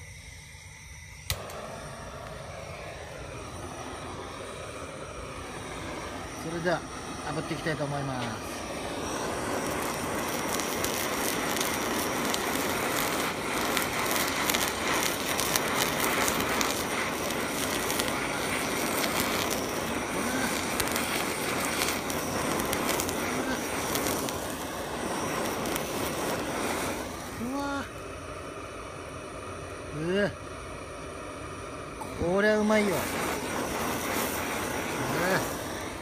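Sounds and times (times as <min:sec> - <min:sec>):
gas torch flame roaring: 0:00.0 - 0:36.0.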